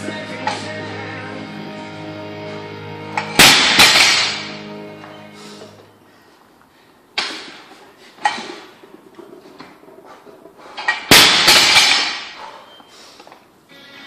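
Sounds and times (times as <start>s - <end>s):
barbell crashing onto rubber floor: 3.3s - 4.5s, 10.9s - 12.4s.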